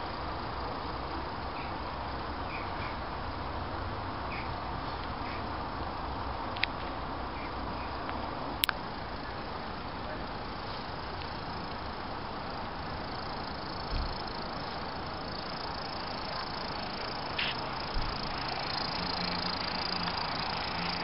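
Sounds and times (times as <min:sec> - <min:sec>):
model train whirring: 0:07.3 - 0:21.0
light ticks: 0:08.0 - 0:08.8.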